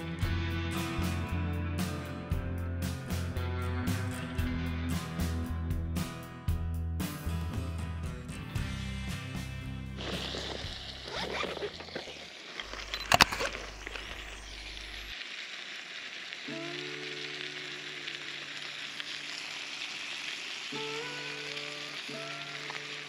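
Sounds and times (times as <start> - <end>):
steady sizzling hiss: 8.6 - 23.0.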